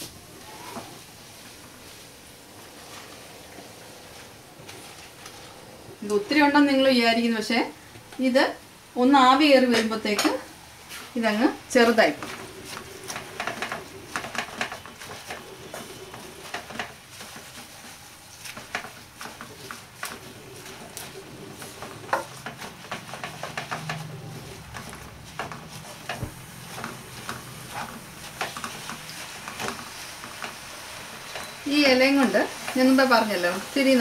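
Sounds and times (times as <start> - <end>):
leaves sizzling softly: 0.0 - 34.0
spatula scraping a frying pan: 10.9 - 34.0.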